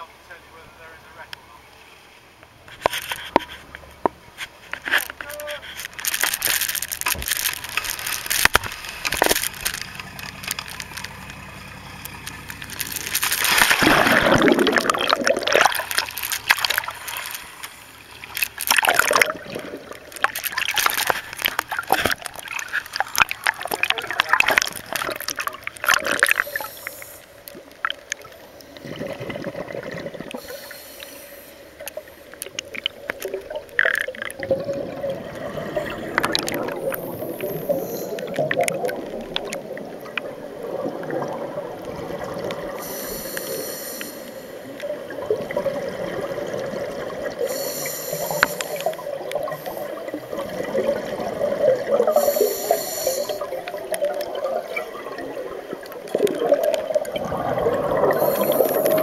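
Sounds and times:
diver exhaling bubbles: 13.4s - 16.0s, 18.8s - 21.1s, 28.8s - 30.8s, 32.9s - 59.0s
regulator hiss: 30.4s - 32.3s, 36.9s - 38.3s, 42.8s - 44.8s, 47.4s - 50.4s, 52.1s - 53.6s, 58.2s - 59.0s.

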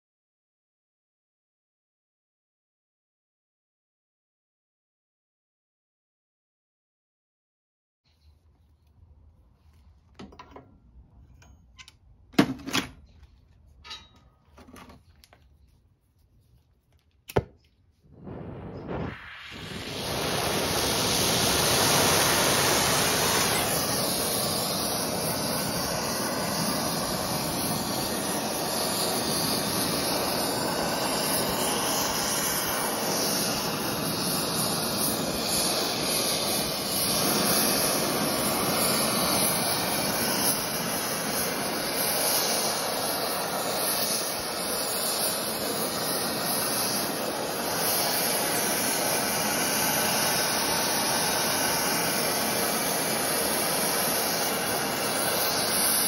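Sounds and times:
gas torch flame hissing: 17.3s - 56.0s.

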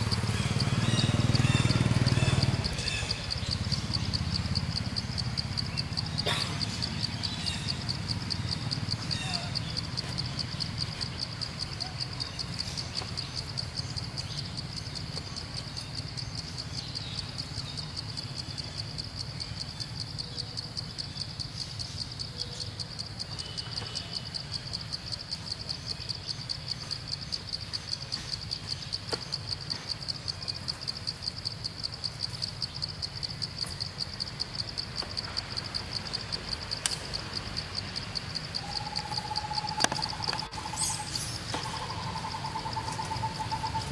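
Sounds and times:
insect chorus buzzing: 0.0s - 43.9s
bird hooting call: 38.6s - 43.9s.

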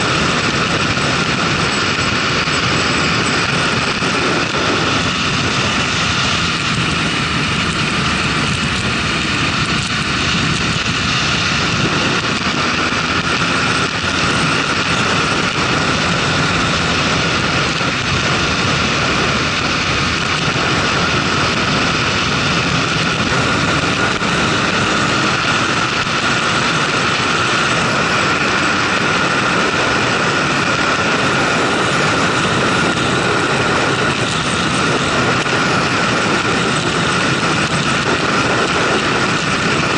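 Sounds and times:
motorcycle engine running: 0.0s - 39.9s
wind rush: 0.0s - 39.9s.

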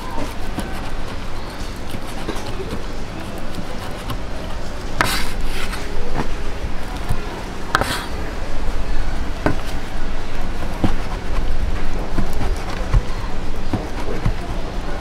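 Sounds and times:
knife chopping on cutting board: 5.0s - 5.7s, 7.7s - 8.1s.

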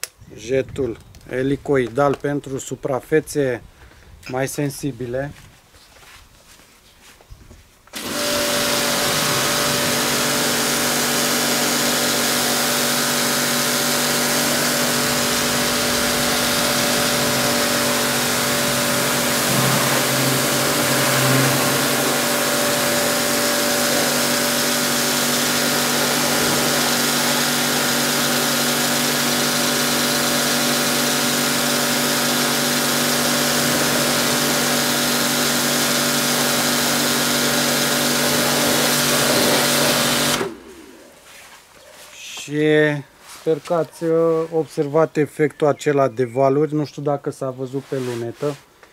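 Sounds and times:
pressure washer motor humming: 8.0s - 40.9s
water spraying hiss: 8.2s - 29.4s, 37.8s - 40.4s.

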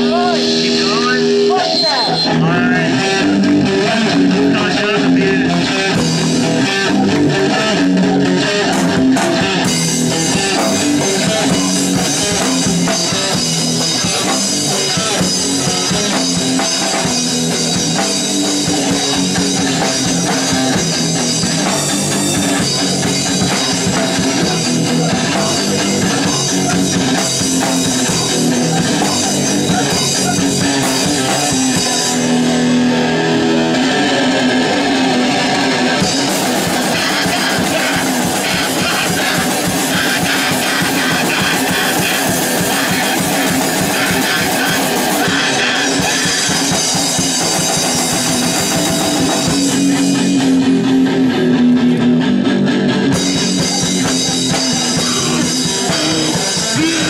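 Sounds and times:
drum kit: 0.0s - 57.0s
electric guitar: 0.0s - 57.0s.

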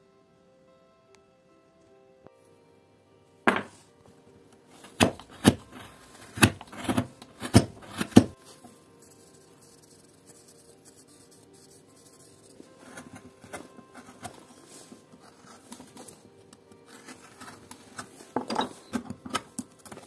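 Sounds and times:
chisel knocking into wood: 3.5s - 3.7s, 5.0s - 8.4s
pencil scratching on wood: 4.8s - 16.2s, 16.8s - 18.2s.

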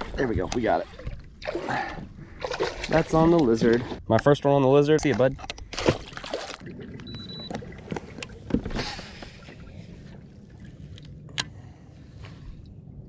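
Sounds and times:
kayak low hum: 0.0s - 4.0s, 5.4s - 13.0s
fishing gear clicking and knocking: 4.9s - 5.9s.

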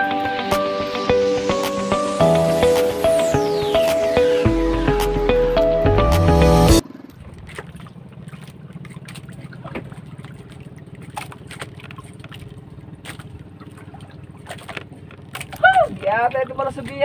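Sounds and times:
background music: 0.0s - 6.8s
boat engine running at low speed: 0.0s - 17.0s.

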